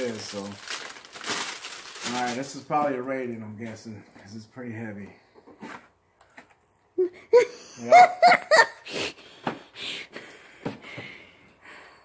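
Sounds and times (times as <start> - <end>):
rustling: 0.0 - 2.8
high-pitched laugh: 7.0 - 9.0.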